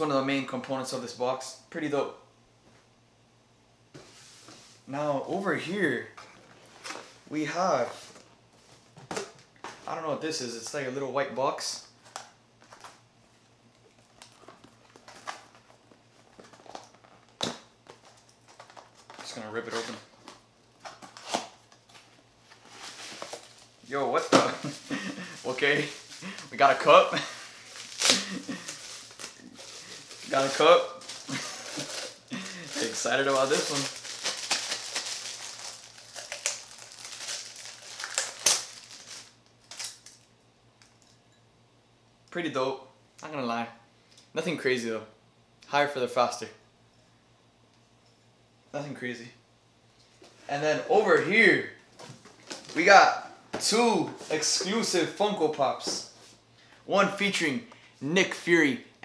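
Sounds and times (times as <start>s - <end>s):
plastic bag crinkling: 22.5s - 40.3s.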